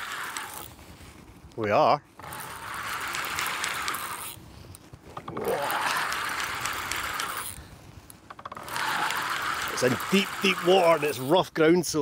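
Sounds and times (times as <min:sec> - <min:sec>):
fishing reel whirring: 0:00.0 - 0:00.8, 0:02.2 - 0:04.4, 0:05.2 - 0:11.4.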